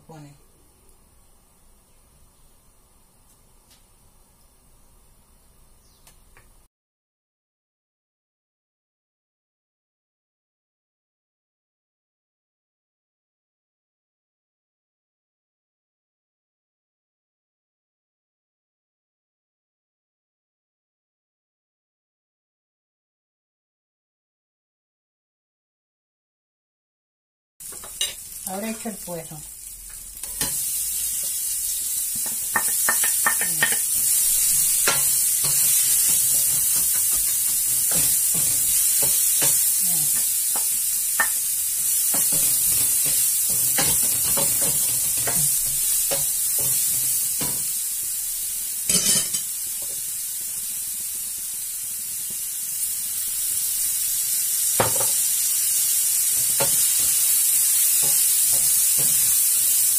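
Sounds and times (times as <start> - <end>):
leek sizzling in hot oil: 27.6 - 59.9.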